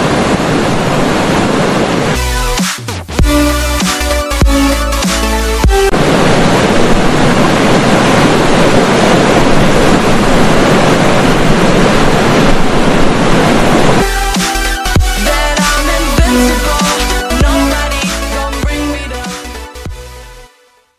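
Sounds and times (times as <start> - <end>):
electronic music: 2.2 - 6.0, 14.0 - 20.5.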